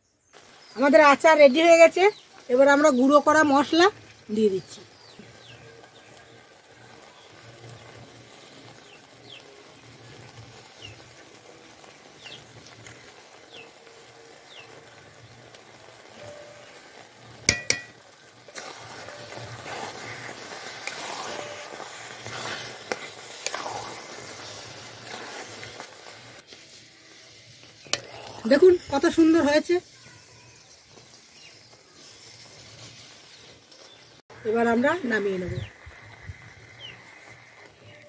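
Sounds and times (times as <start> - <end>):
pickle sizzling in a metal pan: 0.0 - 38.0
steel spoon knocking against pan: 17.5 - 18.0
spoon scraping sticky mixture: 18.5 - 26.7.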